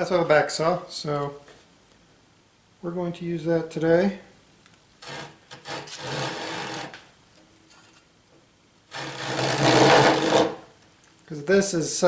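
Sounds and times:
hand saw cutting wood: 5.0 - 7.0, 8.9 - 10.6.

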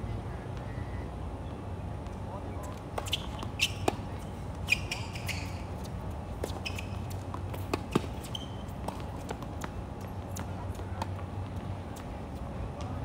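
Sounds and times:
tennis shoes squeaking: 2.6 - 11.2
tennis ball hits and bounces: 2.8 - 11.2.

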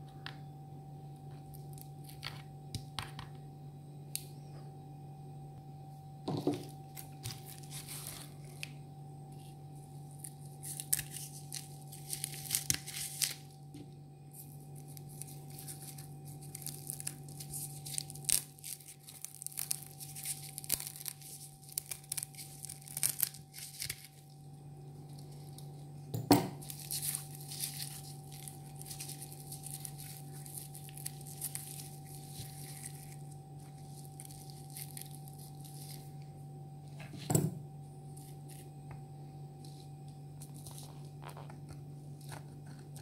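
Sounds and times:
low hum: 0.0 - 43.0
coconut fibres tearing: 6.6 - 13.6, 14.3 - 24.4, 26.6 - 36.3.

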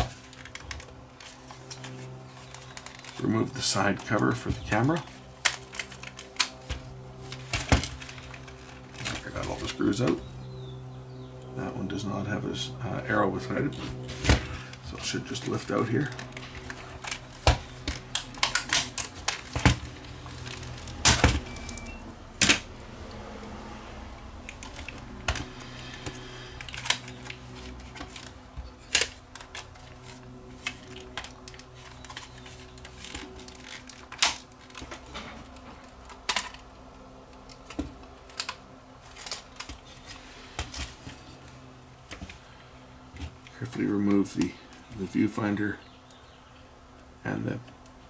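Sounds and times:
faint low hum: 0.0 - 48.0.

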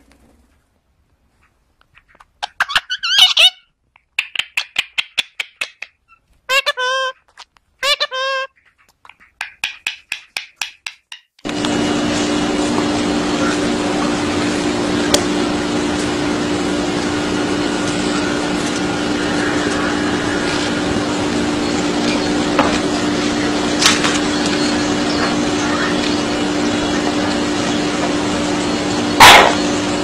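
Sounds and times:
machine hum: 11.4 - 30.0.

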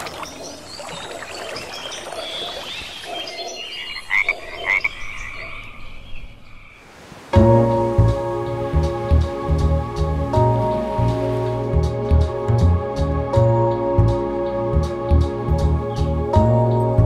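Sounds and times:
frogs chirping and croaking: 0.0 - 6.9
music: 7.4 - 17.0.

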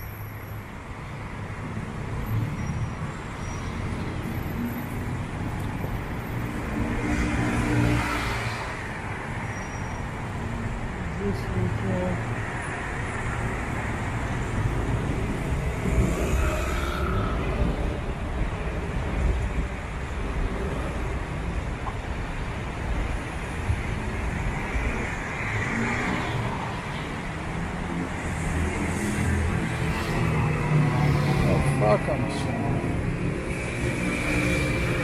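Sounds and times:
city road traffic hum: 0.0 - 35.0.

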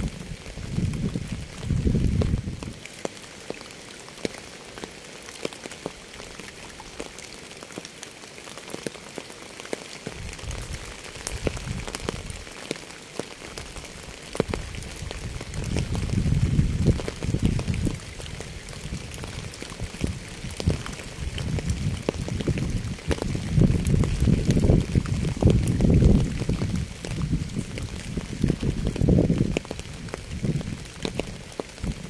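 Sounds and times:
rain falling: 0.0 - 32.0
raindrops ticking: 0.0 - 32.0.

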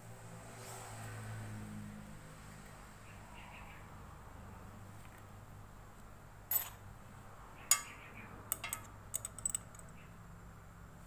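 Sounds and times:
wrenches clinking on metal bolts: 6.5 - 6.8, 7.7 - 10.0.

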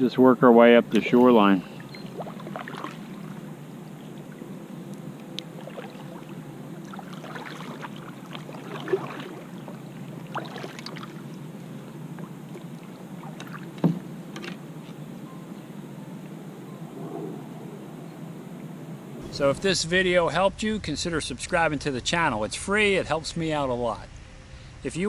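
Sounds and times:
paddle splashing in water: 0.9 - 14.6.

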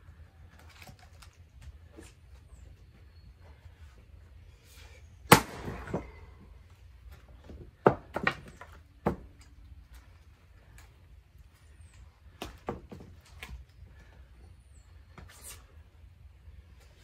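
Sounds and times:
faint bird chirps: 2.4 - 5.3.

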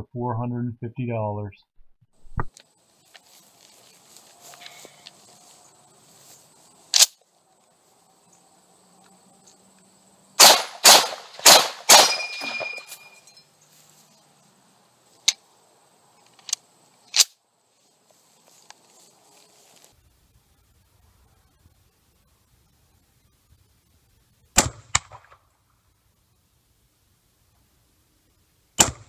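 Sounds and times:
rifle clicks: 6.9 - 7.2, 16.2 - 17.4
rifle shots: 10.4 - 12.9
metallic ring: 12.1 - 13.6.

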